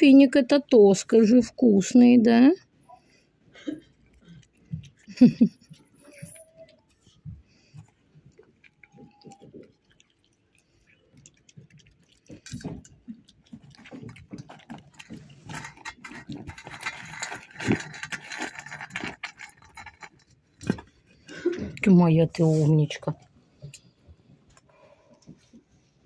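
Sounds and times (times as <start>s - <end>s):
raccoon chewing: 2.9s - 21.9s.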